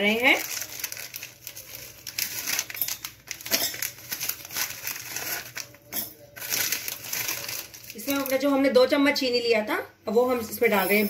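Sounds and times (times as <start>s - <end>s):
plastic wrapper crinkling: 0.0s - 8.8s
biscuits clicking into metal jar: 1.8s - 8.4s.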